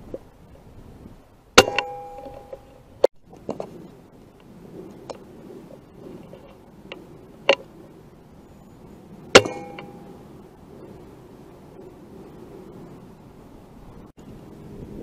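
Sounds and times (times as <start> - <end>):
metallic ring: 1.6 - 2.8, 9.3 - 10.3.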